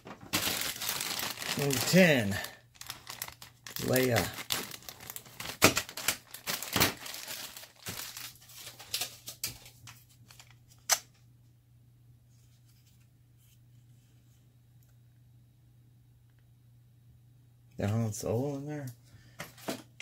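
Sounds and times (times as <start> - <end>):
plastic bag tearing and crinkling: 0.0 - 9.3
sharp plastic crackle: 0.0 - 9.7.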